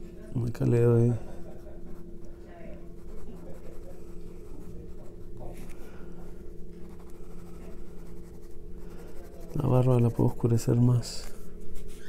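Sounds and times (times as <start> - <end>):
steady low hum: 0.0 - 12.0
pencil scratching on paper: 2.9 - 5.7, 6.3 - 10.6.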